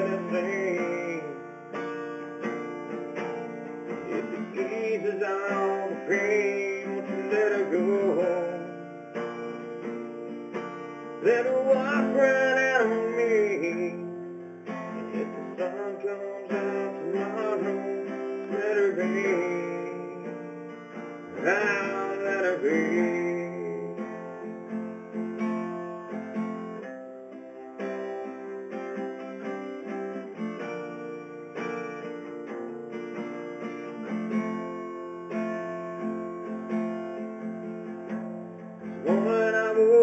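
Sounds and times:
man singing: 0.0s - 1.9s, 3.6s - 9.2s, 11.0s - 24.6s, 38.8s - 40.0s
acoustic guitar strumming: 0.0s - 40.0s.

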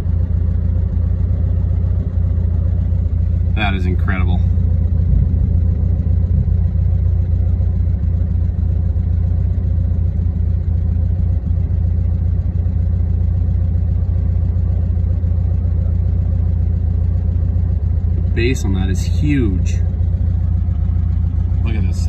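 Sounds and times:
wind buffeting microphone: 4.8s - 7.2s.

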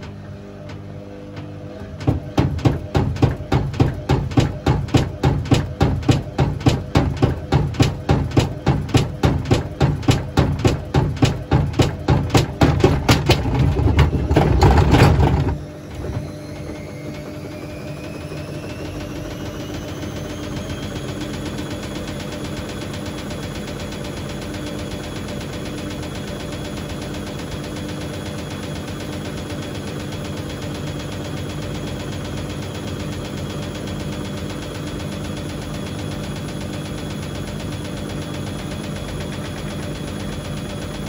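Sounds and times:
washing machine drum tumbling: 0.0s - 21.4s
motor hum with rising whine: 0.0s - 41.0s.

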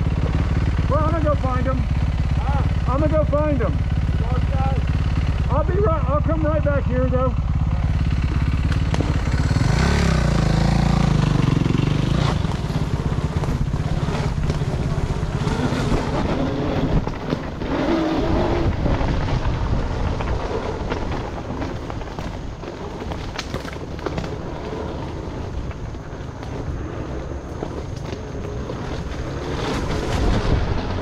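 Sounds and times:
dirt bike engine revving: 0.0s - 21.8s.

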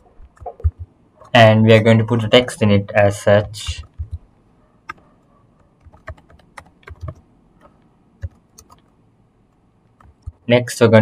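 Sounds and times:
computer keyboard typing: 0.2s - 1.4s, 3.4s - 4.2s, 4.9s - 8.9s, 10.0s - 10.4s.

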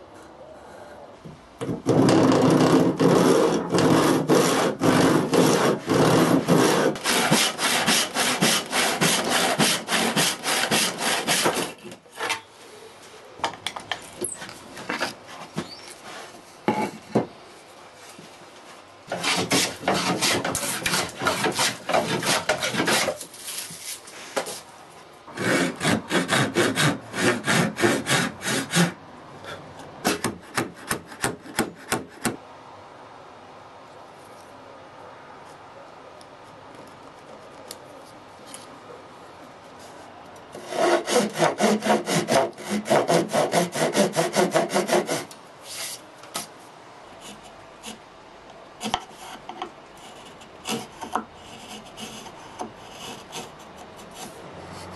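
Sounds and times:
hand saw cutting wood: 1.8s - 12.3s, 19.1s - 23.3s, 25.3s - 29.0s, 30.0s - 32.4s, 40.6s - 45.4s, 50.2s - 54.9s.

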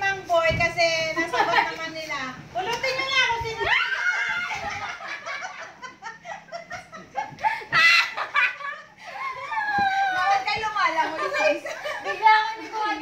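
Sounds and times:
women laughing: 3.7s - 13.0s.

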